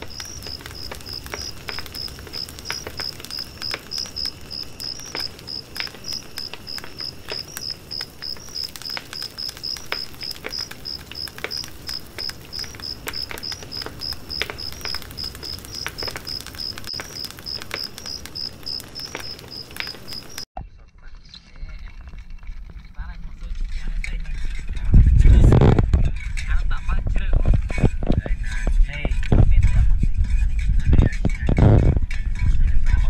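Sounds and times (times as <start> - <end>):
insect chirping: 0.0 - 20.5
sharp clicks: 0.0 - 20.5.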